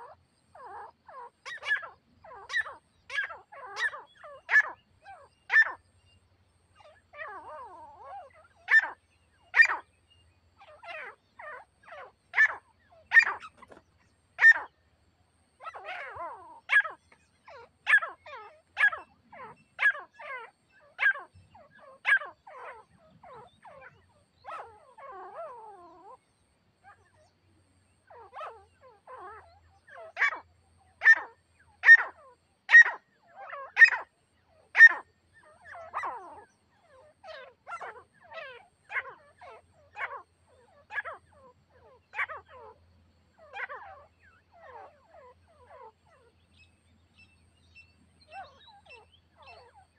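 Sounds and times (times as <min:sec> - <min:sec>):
soft scratchy bird calls: 0:00.0 - 0:14.9, 0:15.6 - 0:27.3, 0:28.0 - 0:49.9
partridges calling sharply: 0:01.4 - 0:05.8, 0:11.9 - 0:14.7.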